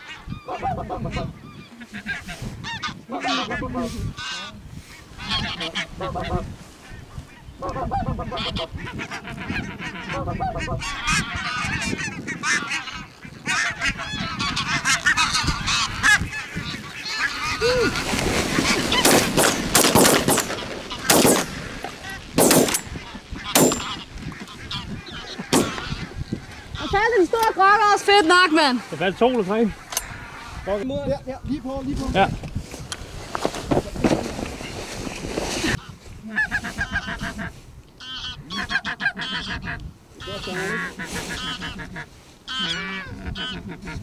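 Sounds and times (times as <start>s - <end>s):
geese honking: 0.0s - 30.8s, 35.7s - 44.0s
shotgun shots: 19.0s - 21.7s, 22.4s - 23.0s, 23.6s - 24.0s, 25.5s - 25.9s.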